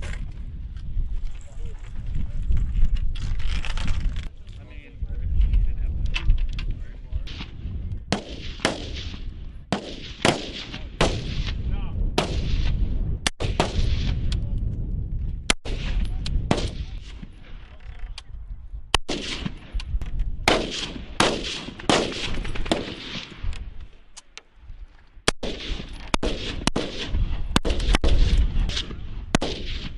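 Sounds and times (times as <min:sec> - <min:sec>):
steady low rumble: 0:00.0 - 0:29.9
rifle shots with echo: 0:07.2 - 0:14.4, 0:15.4 - 0:17.6, 0:18.9 - 0:23.7, 0:25.3 - 0:29.9.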